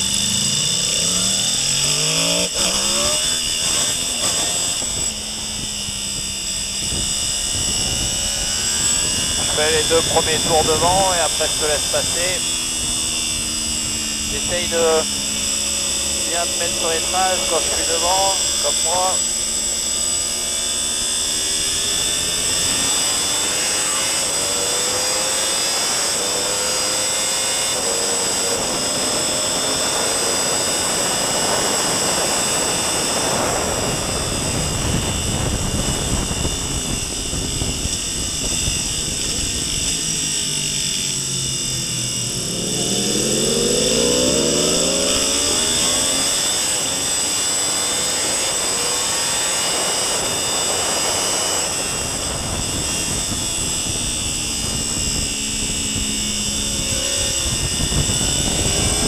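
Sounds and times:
motorcycle engine revving: 0.0 - 59.0
wind roar: 1.0 - 40.4, 41.0 - 59.0.

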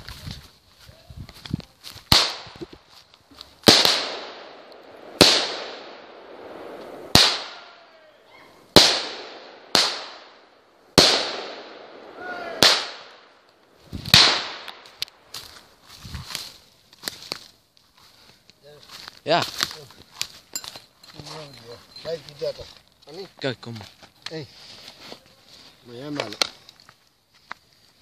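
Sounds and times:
firework bangs: 3.6 - 7.9, 8.7 - 15.0.

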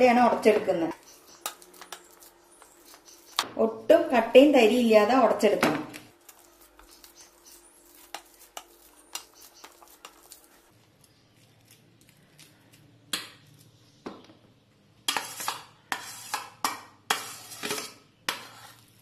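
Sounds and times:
metal spoon scraping steamer pot: 17.1 - 18.8.

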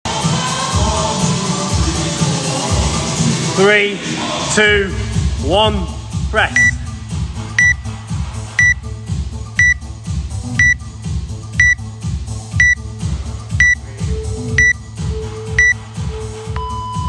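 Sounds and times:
background music with steady beat: 0.1 - 17.0
interval timer short high beeps: 6.5 - 6.8, 7.6 - 7.8, 8.6 - 8.8, 9.6 - 9.8, 10.6 - 10.8, 11.6 - 11.8, 12.6 - 12.8, 13.6 - 13.8, 14.6 - 14.8.

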